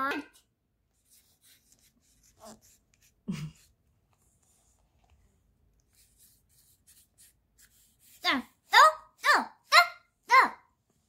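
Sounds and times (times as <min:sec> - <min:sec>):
paintbrush scratching on paper: 0:00.3 - 0:04.9, 0:05.5 - 0:09.8.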